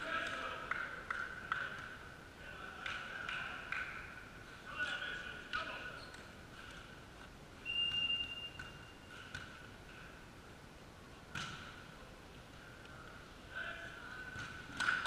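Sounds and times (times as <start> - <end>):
referee whistle blast: 7.6 - 9.0.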